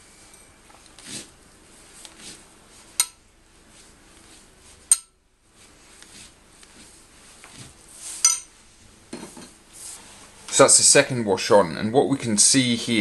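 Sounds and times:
brush stroking rough paper: 0:00.9 - 0:02.9, 0:05.5 - 0:08.2.

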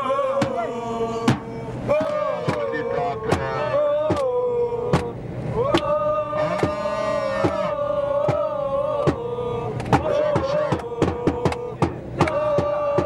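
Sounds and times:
football supporters chanting: 0:00.0 - 0:13.0
steady claps or drum hits: 0:02.0 - 0:02.7, 0:04.1 - 0:04.3, 0:04.9 - 0:05.1, 0:09.8 - 0:13.0.

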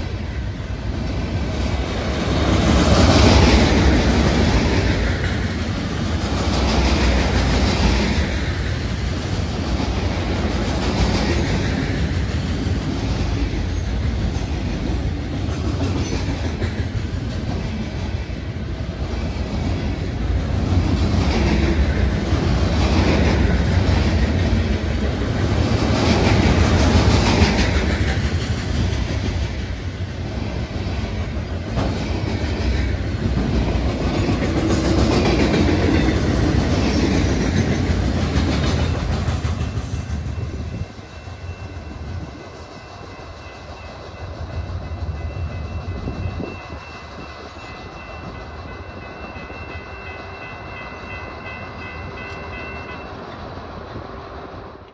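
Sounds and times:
train wheels clacking over rail joints: 0:19.0 - 0:53.6
steady high tone: 0:38.9 - 0:53.8.

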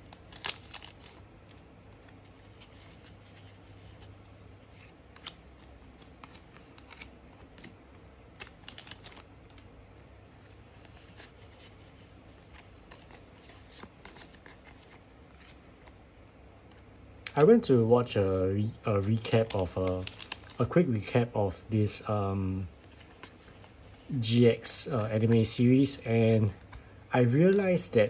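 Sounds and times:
cards flicking and rustling: 0:00.0 - 0:09.7, 0:10.4 - 0:16.0, 0:18.9 - 0:20.7, 0:22.7 - 0:28.0.

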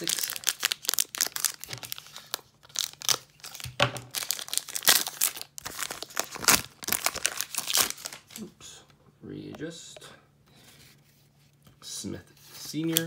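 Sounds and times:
wrapper tearing and crinkling: 0:00.0 - 0:08.4.

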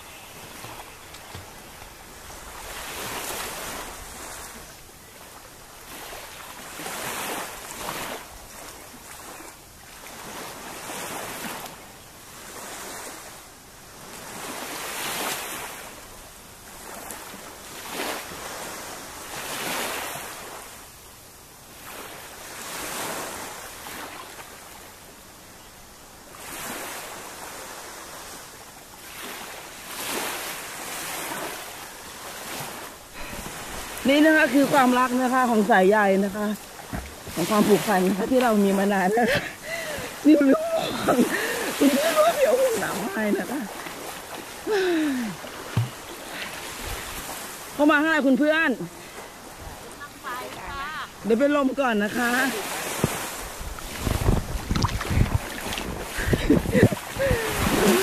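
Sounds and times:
waves washing onto sandy beach: 0:00.0 - 0:58.0.

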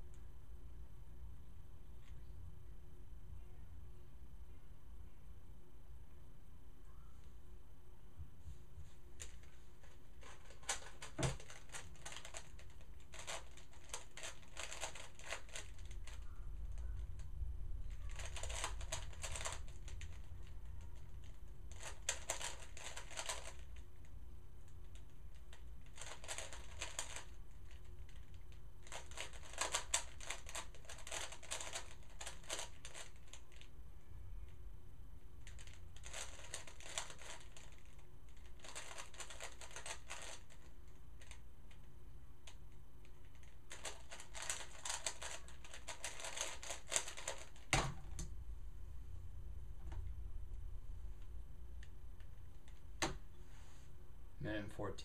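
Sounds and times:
puzzle cube clicking turns: 0:10.2 - 0:16.8, 0:18.0 - 0:20.2, 0:21.2 - 0:23.8, 0:24.9 - 0:33.7, 0:35.4 - 0:41.4, 0:43.3 - 0:47.8.

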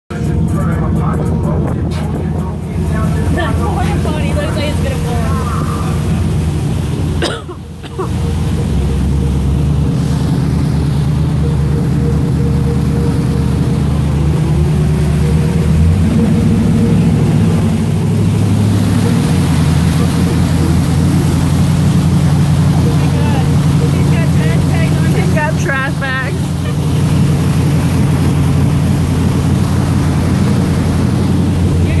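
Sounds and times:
vehicle engine running: 0:00.1 - 0:32.0.

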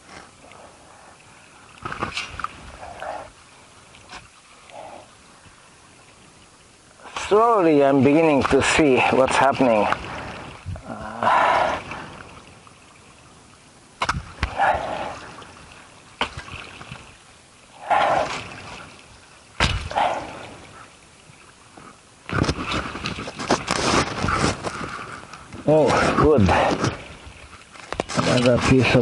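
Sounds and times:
tool knocking against earth: 0:19.6 - 0:20.0
dirt scraping and rustling: 0:21.7 - 0:29.0.

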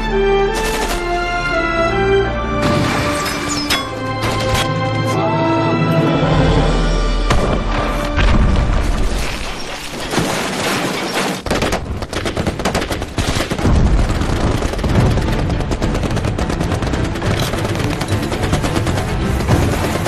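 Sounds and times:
film score music: 0:00.0 - 0:10.1, 0:11.5 - 0:20.0
booming explosions: 0:11.4 - 0:17.3
rifle and machine-gun fire: 0:11.4 - 0:20.0.

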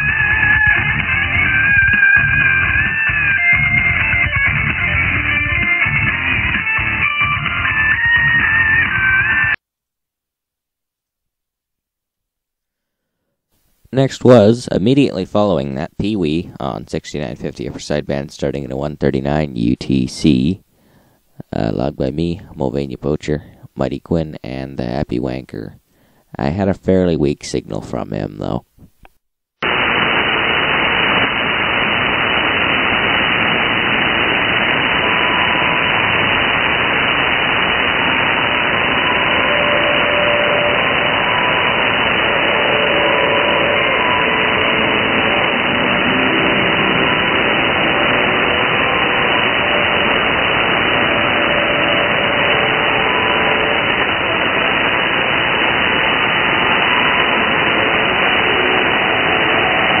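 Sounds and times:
radio static hiss: 0:00.0 - 0:09.6, 0:13.5 - 1:00.0
faint radio tones: 0:13.6 - 1:00.0.

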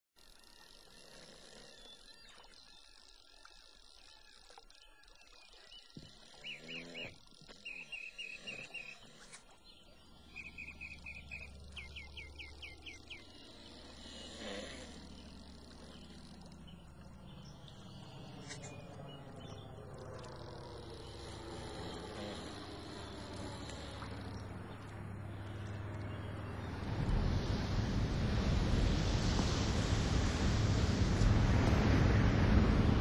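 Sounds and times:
propeller plane drone: 0:00.2 - 0:33.0
bird chirps: 0:01.7 - 0:13.9.

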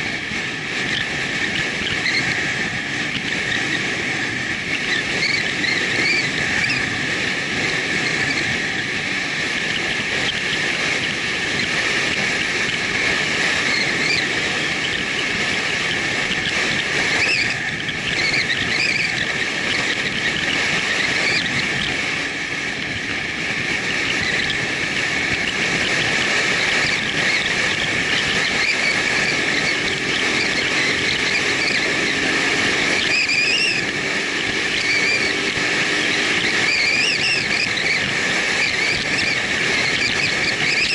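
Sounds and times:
road noise: 0:00.0 - 0:40.9
wind rush: 0:00.0 - 0:40.9.

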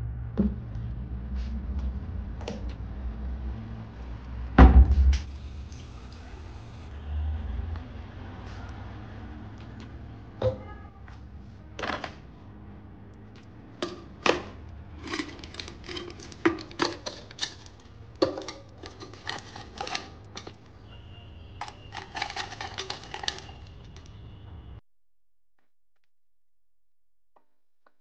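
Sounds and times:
ceramic mug set on metal tray: 0:13.8 - 0:20.6, 0:21.6 - 0:23.7
metal canister lid clattering: 0:13.8 - 0:20.6, 0:21.9 - 0:23.5.

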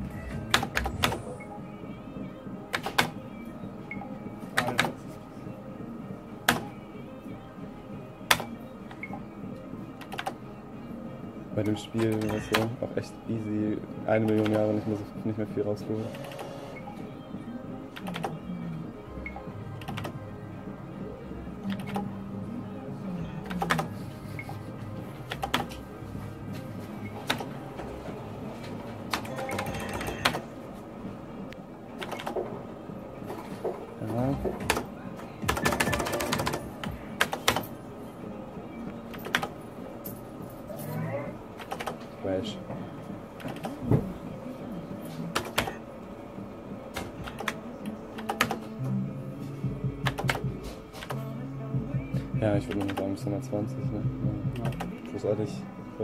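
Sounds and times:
electronic game sounds: 0:00.0 - 0:07.0, 0:11.5 - 0:20.4, 0:23.2 - 0:40.0.

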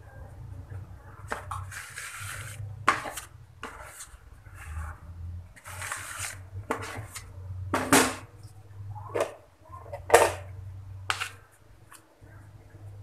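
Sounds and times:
spatula scraping plastic bowl: 0:01.3 - 0:07.3.

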